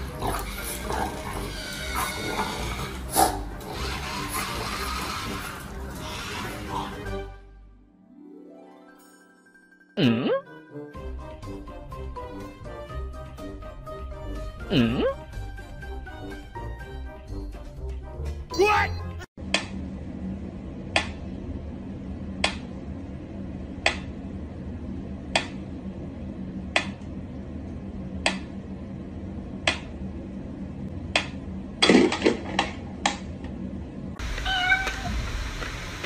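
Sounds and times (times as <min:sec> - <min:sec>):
cat meowing: 0:34.2 - 0:35.3.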